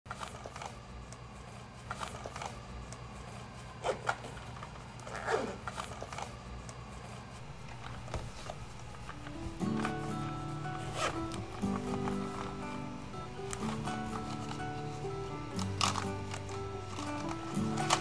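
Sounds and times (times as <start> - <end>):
objects clicking and rustling: 7.4 - 18.0.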